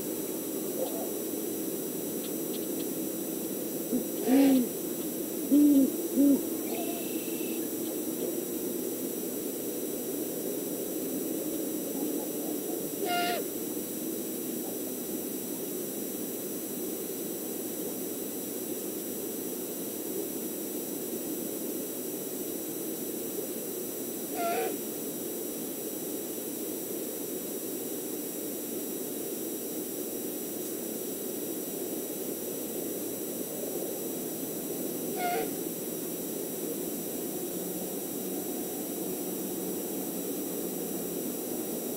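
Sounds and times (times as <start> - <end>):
steady background hiss: 0.0 - 41.9
owl calls: 0.7 - 1.2, 3.9 - 4.8, 5.4 - 7.9, 12.9 - 13.5, 24.3 - 24.8, 35.1 - 35.6.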